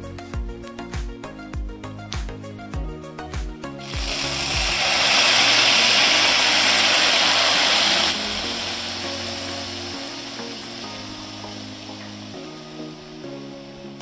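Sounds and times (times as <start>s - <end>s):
background music with a beat: 0.0s - 14.0s
food sizzling in hot oil: 3.8s - 14.0s.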